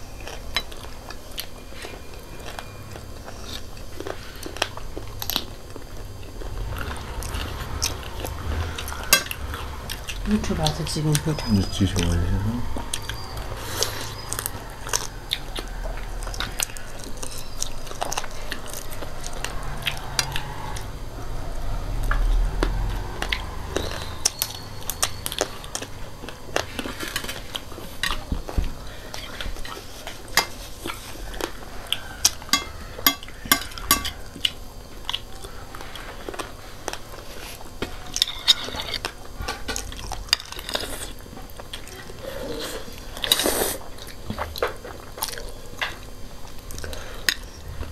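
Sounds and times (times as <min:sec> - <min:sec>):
chewing crunchy food: 0:00.0 - 0:10.1, 0:22.4 - 0:47.9
cutlery tapping on plates: 0:32.5 - 0:34.2.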